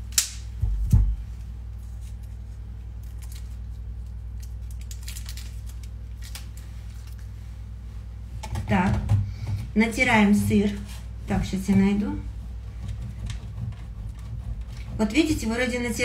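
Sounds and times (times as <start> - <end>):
plastic wrapper crinkling: 1.8 - 7.4.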